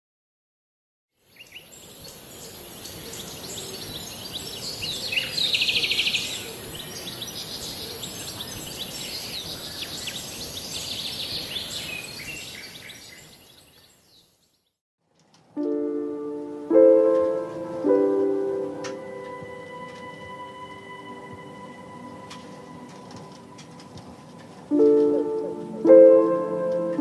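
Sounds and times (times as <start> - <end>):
small birds chirping: 1.2 - 14.8.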